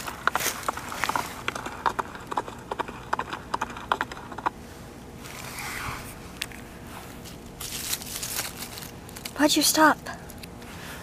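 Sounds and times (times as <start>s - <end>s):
horse hoofbeats: 0.0s - 4.6s.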